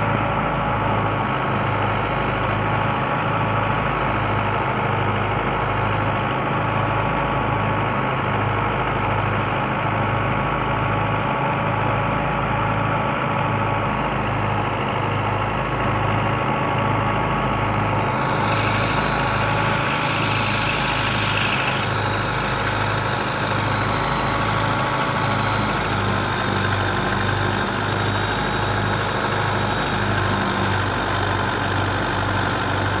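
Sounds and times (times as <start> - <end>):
tractor diesel engine running: 0.0 - 33.0
thresher whine: 16.7 - 33.0.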